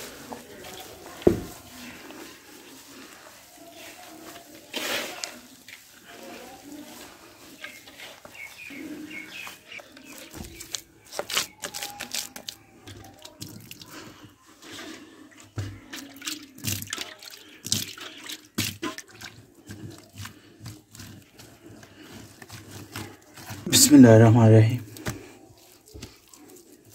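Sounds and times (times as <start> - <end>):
hands kneading wet mud: 0.0 - 26.9
wet mud slapping: 16.2 - 23.8.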